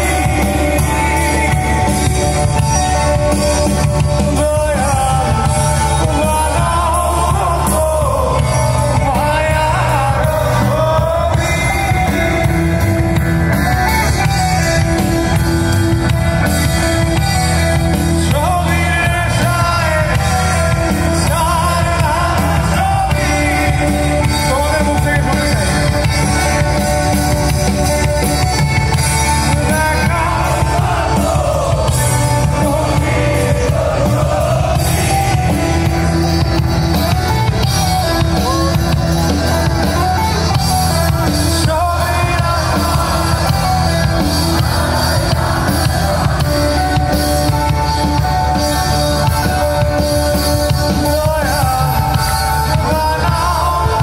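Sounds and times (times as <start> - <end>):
bass guitar: 0.0 - 54.0
drums: 0.0 - 54.0
electric guitars: 0.0 - 54.0
person singing: 49.5 - 54.0.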